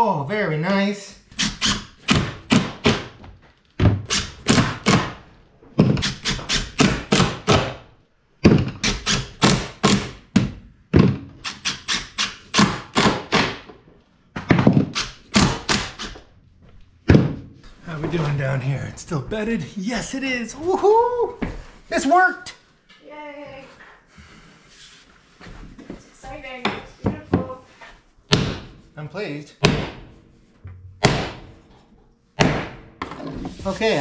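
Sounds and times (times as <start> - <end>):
impact driver driving screws: 1.3 - 3.1, 4.0 - 5.2, 5.8 - 7.7, 8.5 - 10.2, 11.4 - 13.6, 14.7 - 16.2.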